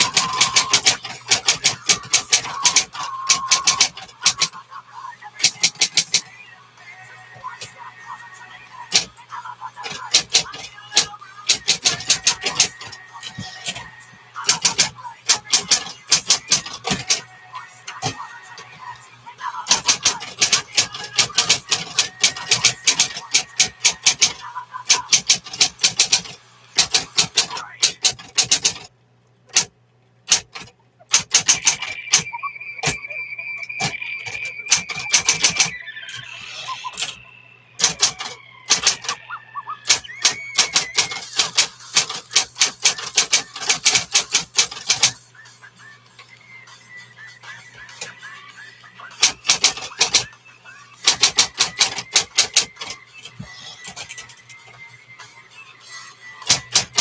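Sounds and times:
electric typewriter key strikes: 0:00.0 - 0:04.6, 0:09.8 - 0:13.8, 0:14.5 - 0:17.2, 0:19.7 - 0:28.9, 0:29.5 - 0:29.7, 0:30.3 - 0:33.0, 0:33.7 - 0:35.7, 0:37.8 - 0:39.2, 0:39.9 - 0:45.2, 0:49.2 - 0:50.2, 0:51.0 - 0:53.0, 0:56.4 - 0:57.0.

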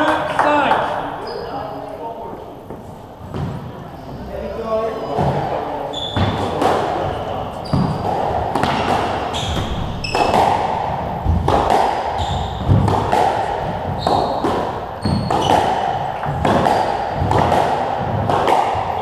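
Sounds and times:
shoes squeaking on wooden floor: 0:00.0 - 0:10.6, 0:12.1 - 0:12.9, 0:13.8 - 0:17.4
squash ball striking rackets and walls: 0:02.7 - 0:03.8, 0:05.2 - 0:19.0.

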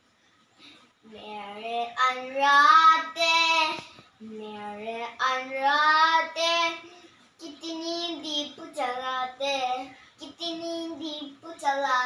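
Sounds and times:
boy singing unaccompanied: 0:01.0 - 0:12.0.

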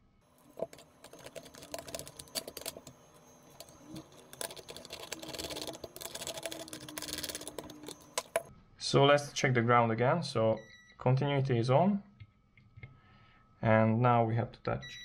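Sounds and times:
small metal parts clicking: 0:03.6 - 0:08.5.

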